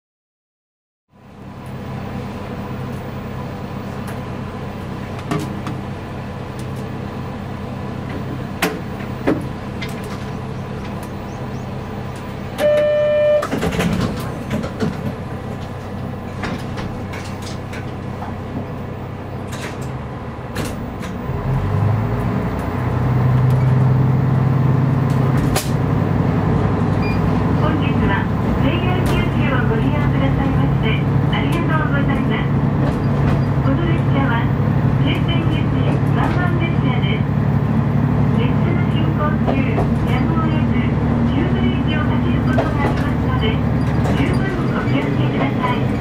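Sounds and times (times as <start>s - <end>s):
diesel railcar engine idling: 1.1s - 46.0s
doors closing clatter: 12.1s - 21.4s, 25.0s - 25.9s, 26.8s - 30.6s, 31.4s - 34.2s, 35.1s - 36.7s, 41.4s - 46.0s
short buzzer tone: 12.6s - 13.6s.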